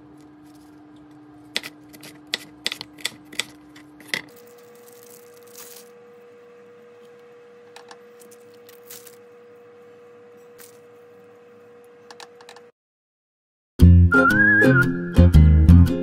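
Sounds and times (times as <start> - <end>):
plastic wrapper rustling: 4.3 - 6.0, 8.0 - 9.3.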